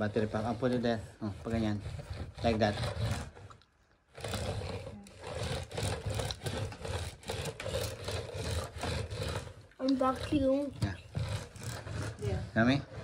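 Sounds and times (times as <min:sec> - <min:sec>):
vacuum head rubbing on carpet: 0:00.0 - 0:03.6, 0:04.2 - 0:13.0.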